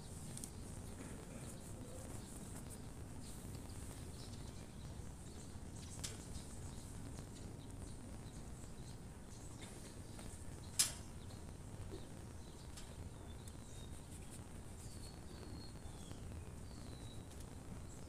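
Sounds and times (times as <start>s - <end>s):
faint bird chirps: 0.0s - 18.0s.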